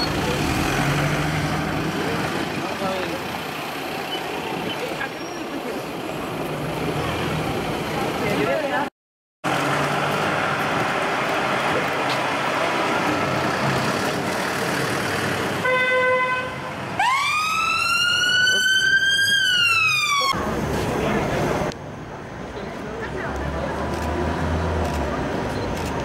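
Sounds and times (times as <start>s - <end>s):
street traffic: 0.0s - 26.0s
emergency siren wailing: 17.0s - 20.4s.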